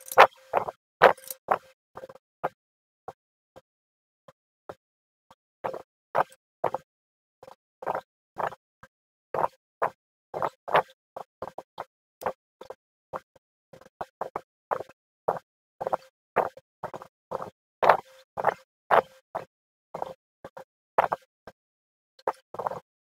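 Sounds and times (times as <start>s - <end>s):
computer mouse clicking: 0.0s - 0.4s, 1.0s - 1.4s.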